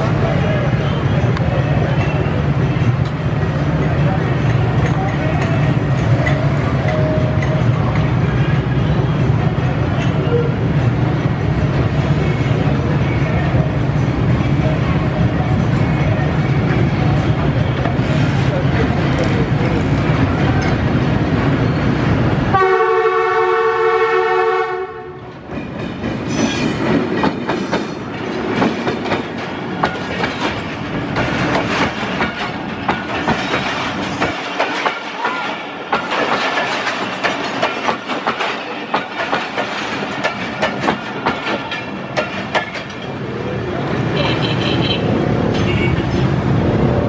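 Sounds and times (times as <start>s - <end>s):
diesel locomotive running: 0.0s - 47.0s
train wheels clacking over rail joints: 1.2s - 12.4s, 25.3s - 44.4s
train horn: 22.5s - 25.3s.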